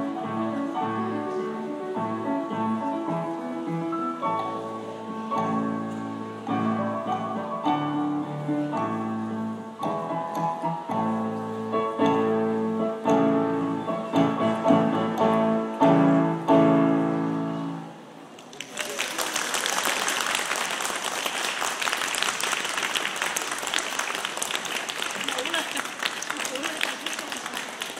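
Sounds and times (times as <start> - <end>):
grand piano chords: 0.0 - 18.3
audience applause: 18.4 - 27.9.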